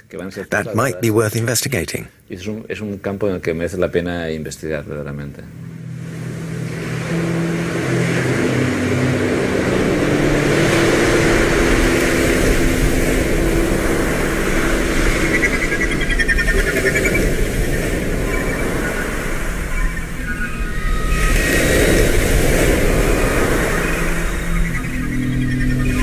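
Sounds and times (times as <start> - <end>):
low steady tones: 3.1 - 26.0
ocean surf breaking: 5.6 - 26.0.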